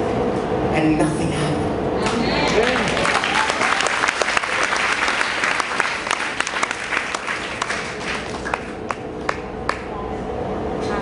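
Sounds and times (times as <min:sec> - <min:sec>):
congregation applauding: 0:02.0 - 0:09.9.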